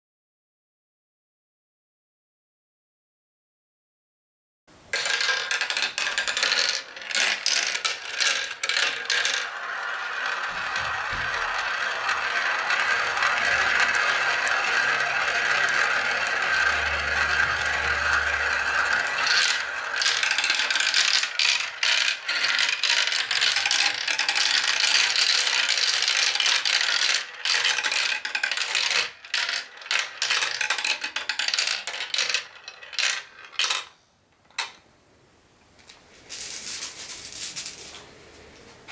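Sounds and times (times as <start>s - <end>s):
balls rumbling in funnel bowl: 4.9s - 33.8s
plastic balls clattering in marble run: 4.9s - 33.9s.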